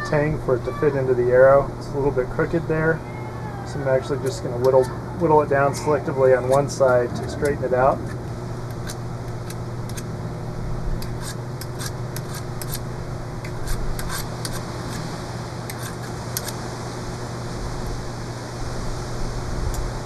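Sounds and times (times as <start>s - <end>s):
low hum: 0.0s - 20.0s
knife scraping wood: 11.0s - 12.8s, 13.5s - 15.1s, 15.7s - 16.6s.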